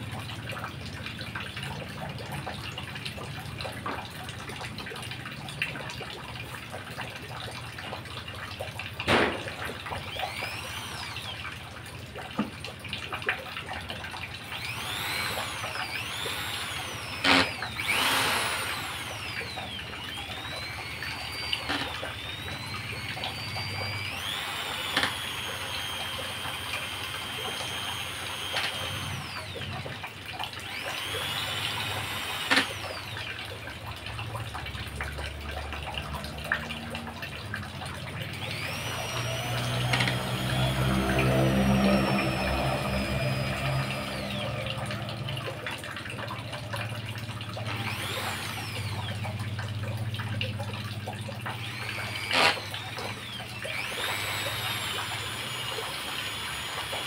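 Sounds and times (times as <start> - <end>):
electric drill whine: 9.1 - 12.5, 14.3 - 33.8, 38.2 - 57.0.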